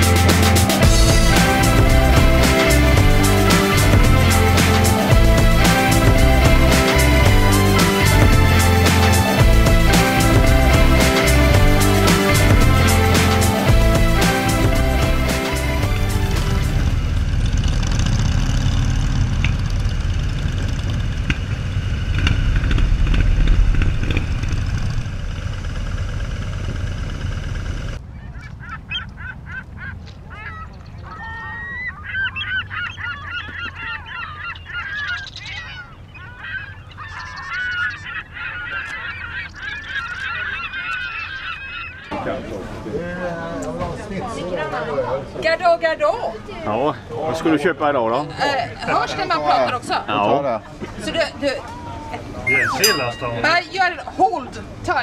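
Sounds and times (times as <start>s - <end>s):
motorcycles rumbling: 0.0s - 28.6s
birds calling: 28.0s - 42.5s, 52.4s - 54.3s.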